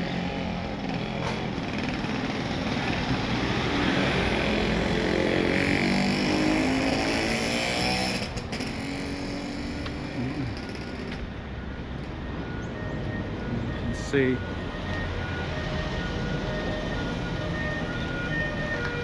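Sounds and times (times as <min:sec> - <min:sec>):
street background noise: 0:00.0 - 0:19.0
motorbike engine passing: 0:01.1 - 0:11.2.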